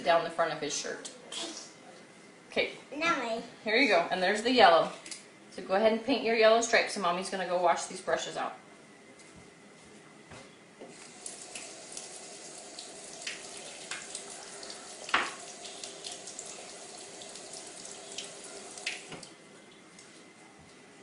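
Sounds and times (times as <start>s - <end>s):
faucet running into sink: 10.9s - 19.3s.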